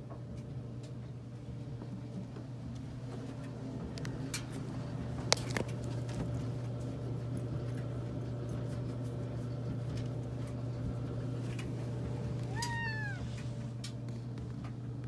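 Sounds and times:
cat meowing: 0:12.4 - 0:13.6.

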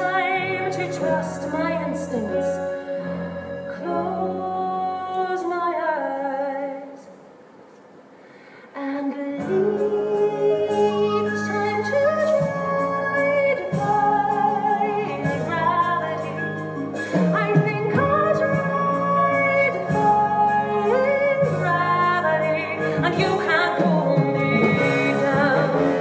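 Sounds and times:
woman singing: 0:00.0 - 0:07.1, 0:08.8 - 0:26.0
pit orchestra playing: 0:09.5 - 0:26.0.

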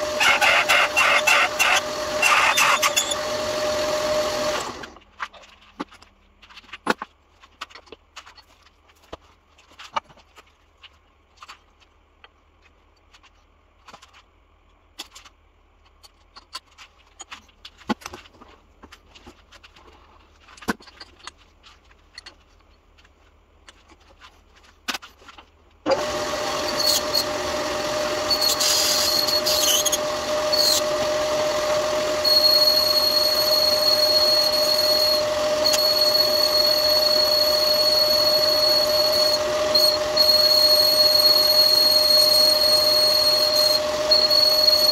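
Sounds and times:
high squeal of metal cutting: 0:00.0 - 0:04.6, 0:26.0 - 0:44.9
lathe motor humming: 0:00.0 - 0:04.9, 0:25.9 - 0:44.9.

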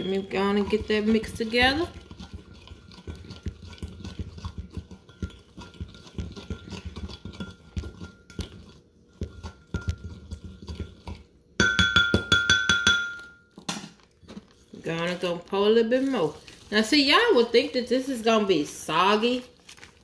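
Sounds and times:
plastic bag rustling: 0:14.0 - 0:17.6, 0:19.1 - 0:20.0.

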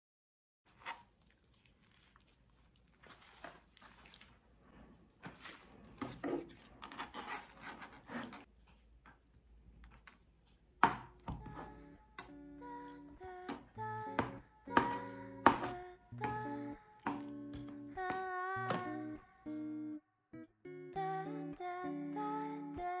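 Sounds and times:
paper towel rustle: 0:00.7 - 0:08.6
hands squishing crumbling tofu: 0:00.7 - 0:12.4.

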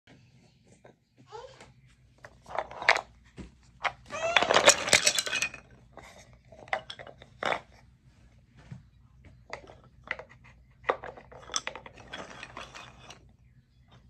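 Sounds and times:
wooden toy pieces clattering: 0:02.3 - 0:03.1, 0:03.8 - 0:07.7, 0:09.5 - 0:13.3.

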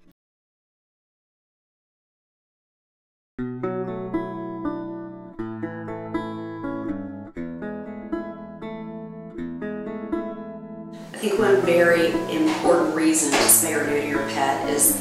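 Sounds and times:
acoustic guitar picking: 0:03.4 - 0:15.0.

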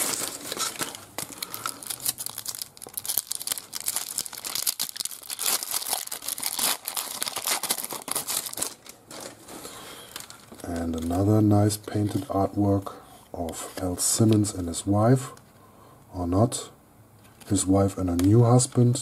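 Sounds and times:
foil wrapper crinkling and tearing: 0:00.0 - 0:11.3.

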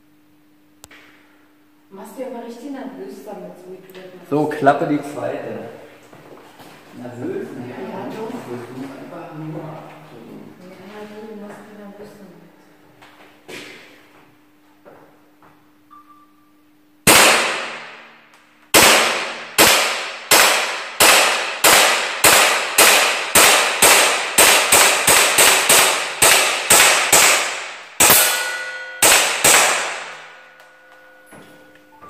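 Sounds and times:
gas pistol shots with echo: 0:17.0 - 0:30.6.

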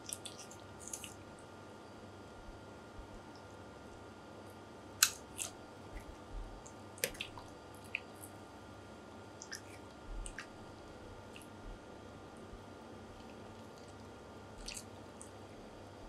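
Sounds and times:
wet squelching of soft flesh: 0:14.6 - 0:15.3.

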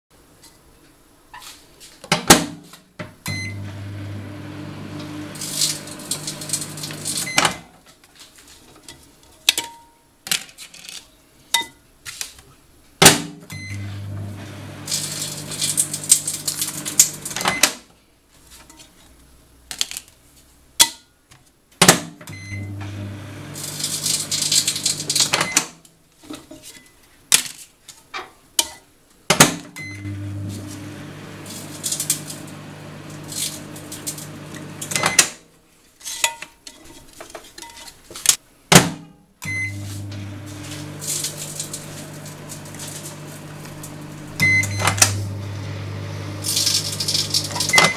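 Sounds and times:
microwave oven humming: 0:03.3 - 0:07.4, 0:13.5 - 0:17.6, 0:22.4 - 0:25.6, 0:29.8 - 0:35.4, 0:39.4 - 0:47.9
crackling electrical arcing: 0:05.0 - 0:07.3, 0:14.3 - 0:17.4, 0:23.4 - 0:25.4, 0:30.6 - 0:34.9, 0:39.8 - 0:47.8.

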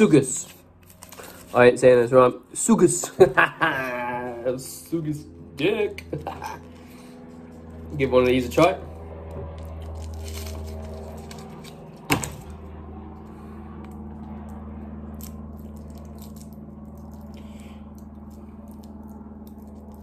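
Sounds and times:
steady low hum: 0:00.0 - 0:20.0
sharp paper crack: 0:00.4 - 0:01.6, 0:09.6 - 0:12.6, 0:14.2 - 0:20.0
paper wrapper crinkling: 0:00.8 - 0:01.6, 0:09.6 - 0:12.3.

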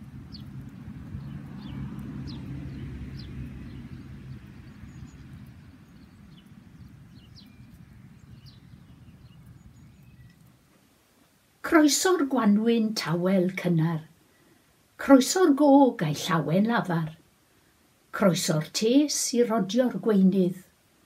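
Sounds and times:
low steady rumble: 0:00.0 - 0:10.8
small birds chirping: 0:00.0 - 0:11.0.

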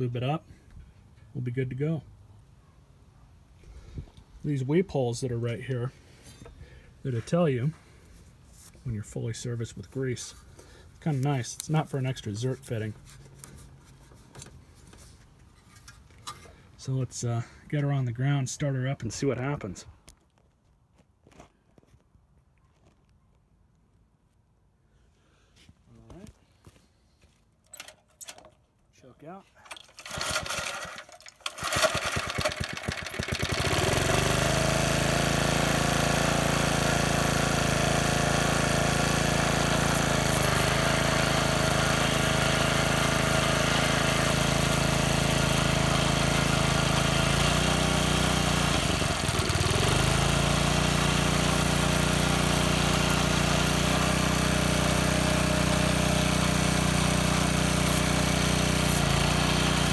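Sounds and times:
engine pull-start: 0:29.7 - 0:35.1
small gasoline engine running: 0:29.7 - 0:59.9.

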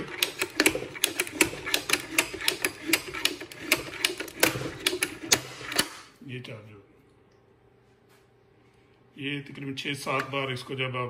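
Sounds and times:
ratchet handle clicking: 0:00.0 - 0:06.0.

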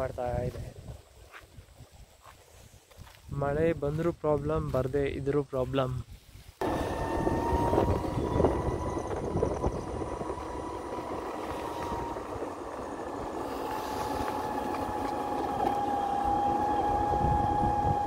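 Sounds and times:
electric motor whine: 0:06.6 - 0:18.0
low noisy rumble: 0:06.6 - 0:18.0.

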